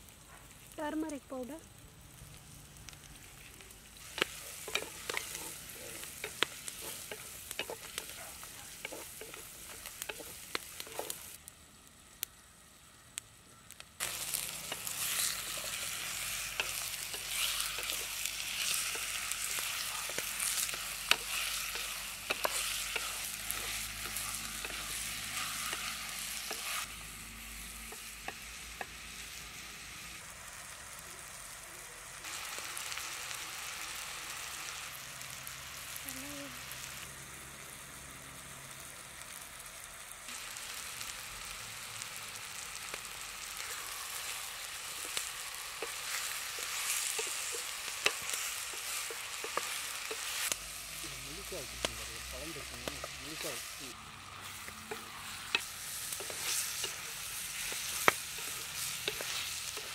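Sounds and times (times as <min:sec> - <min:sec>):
onions frying in a pot: 0:00.0 - 0:59.9
stirring clicks and knocks: 0:04.0 - 0:11.3
chicken sizzling loudly: 0:13.8 - 0:59.9.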